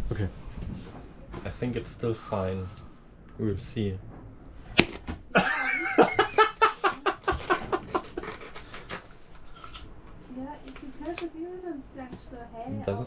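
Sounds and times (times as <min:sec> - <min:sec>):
person laughing hard: 0:05.4 - 0:08.8.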